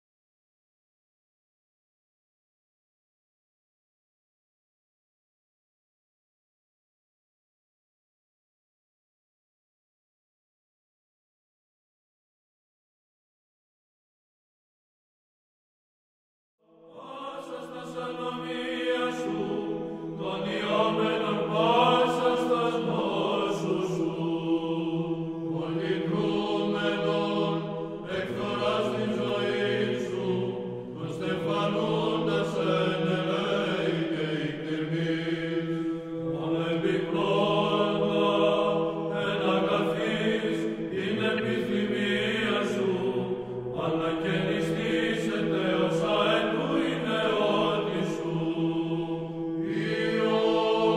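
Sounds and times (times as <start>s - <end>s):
chanted singing over drone: 16.6s - 50.9s.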